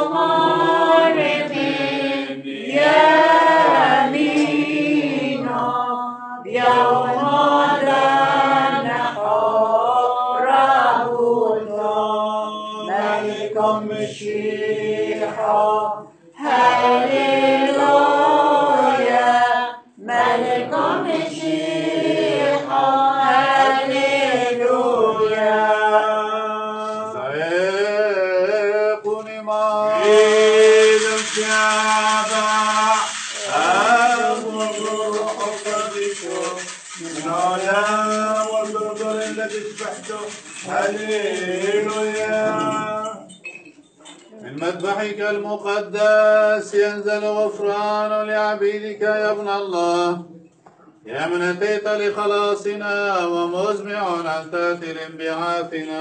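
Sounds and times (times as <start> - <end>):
clergy chanting: 0.0 - 43.3.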